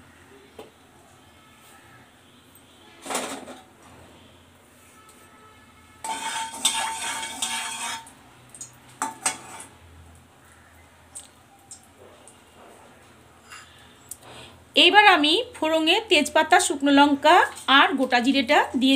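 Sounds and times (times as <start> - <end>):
spatula clanking on pan: 6.0 - 8.1, 9.0 - 9.7
metal spatula scraping pan: 6.0 - 8.2, 9.0 - 9.8.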